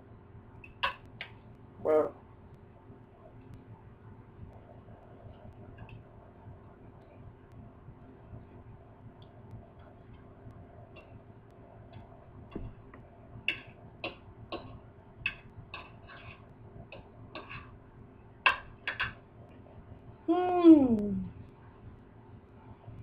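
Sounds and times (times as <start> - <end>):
cutlery clicking on a platter: 13.5 - 16.4, 18.5 - 19.2.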